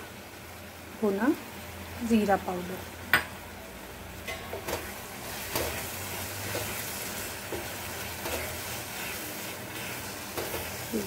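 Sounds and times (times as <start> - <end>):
chutney sizzling in a pan: 0.0 - 11.0
wooden spatula scraping a pan: 4.7 - 11.0.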